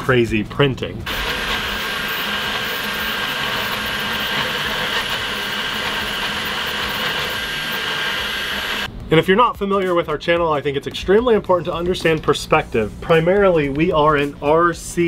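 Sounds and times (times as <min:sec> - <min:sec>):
printer fans and motors whirring: 0:01.1 - 0:08.9.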